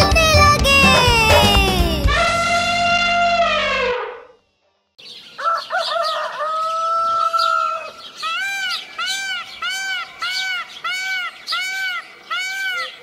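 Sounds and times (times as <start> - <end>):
music: 0.0 - 3.9
rooster crowing: 5.4 - 8.0.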